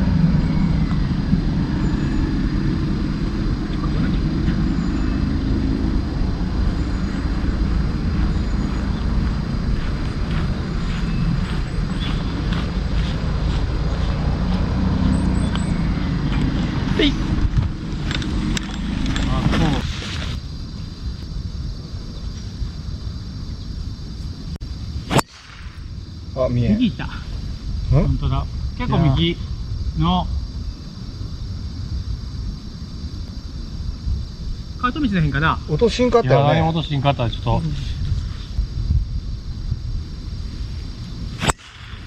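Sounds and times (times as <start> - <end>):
golf cart rumbling: 0.0 - 20.5
golf club striking ball: 25.1 - 25.7.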